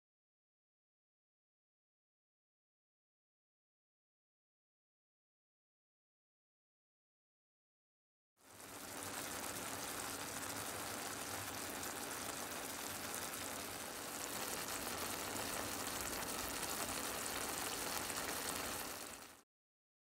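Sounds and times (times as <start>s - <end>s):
tomatoes sizzling in a frying pan: 8.4s - 19.4s.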